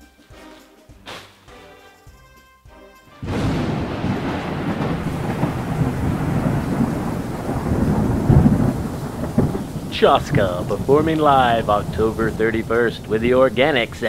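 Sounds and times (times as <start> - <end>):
rolling thunder: 3.2 - 14.0
steady rain: 3.2 - 14.0.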